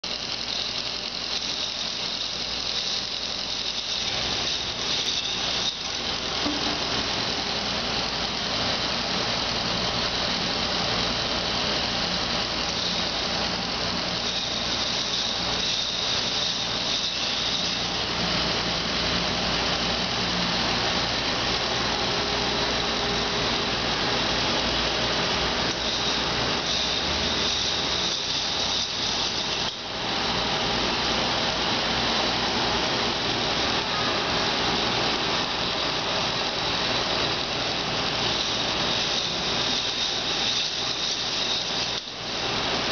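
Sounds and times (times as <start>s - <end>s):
toy motor whining: 0.0s - 18.8s, 23.8s - 29.9s, 36.9s - 42.9s.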